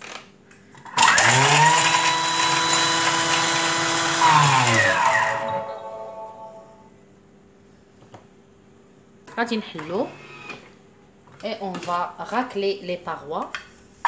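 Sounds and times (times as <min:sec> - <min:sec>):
kitchen machine motor whine: 0:00.8 - 0:06.9.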